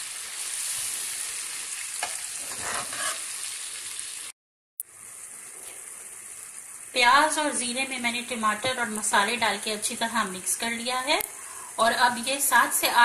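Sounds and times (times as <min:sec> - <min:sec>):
food sizzling in hot oil: 0:00.0 - 0:13.0
metal spoon stirring in pan: 0:02.0 - 0:03.3.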